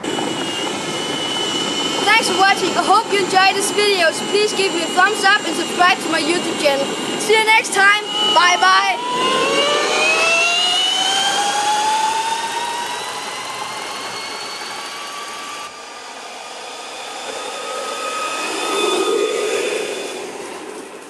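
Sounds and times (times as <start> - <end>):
electric motor whining: 0.0 - 20.6.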